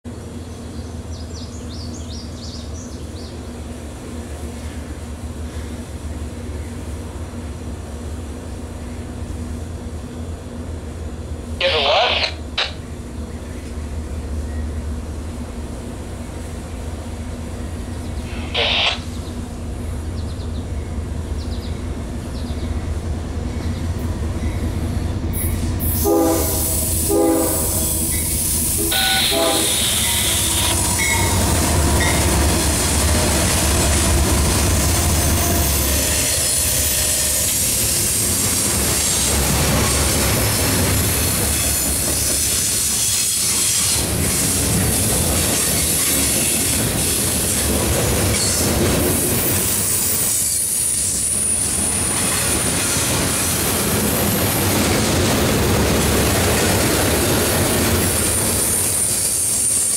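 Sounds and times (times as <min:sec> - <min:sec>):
train horn blasts: 0:25.8 - 0:31.4
wheels clattering on rails: 0:35.8 - 0:59.9.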